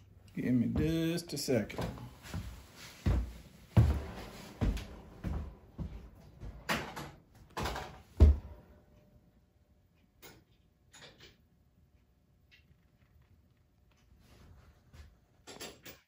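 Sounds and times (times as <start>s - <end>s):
hard parts clunking and knocking: 6.5s - 8.6s.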